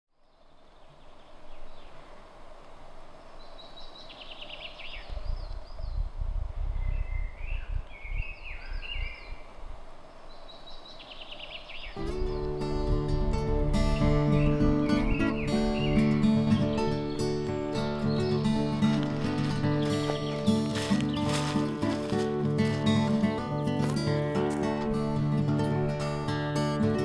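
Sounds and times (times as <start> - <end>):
songbird singing with trill: 0.2 - 2.2, 3.3 - 6.1, 6.7 - 21.9
bird calls: 3.1 - 6.1, 6.8 - 12.8, 13.8 - 23.8
acoustic guitar music: 12.0 - 27.0.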